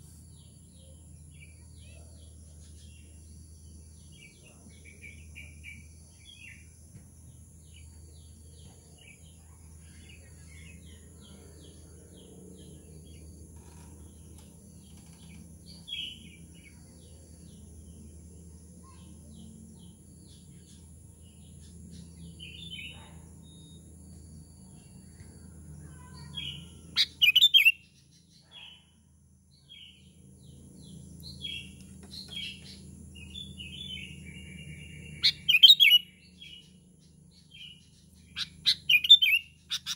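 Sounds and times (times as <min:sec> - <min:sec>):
bulbul chirping calls: 0:27.0 - 0:27.8, 0:34.0 - 0:36.1, 0:38.3 - 0:39.9.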